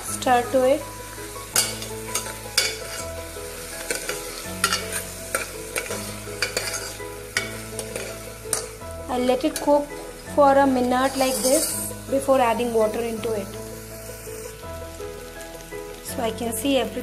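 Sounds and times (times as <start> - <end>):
food sizzling in ghee: 0.0 - 17.0
soft background music: 0.0 - 17.0
ladle scraping a pot: 3.8 - 8.7, 10.9 - 12.0.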